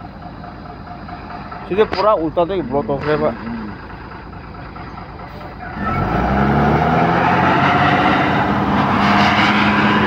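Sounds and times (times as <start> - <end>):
truck engine revving under load: 1.6 - 10.0.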